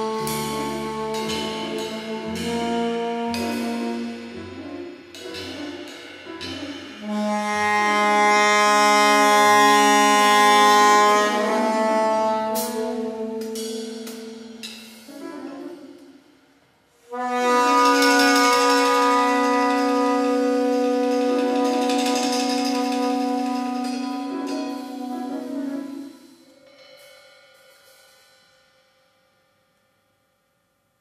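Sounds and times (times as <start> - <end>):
soprano saxophone held notes: 7.0 - 14.4.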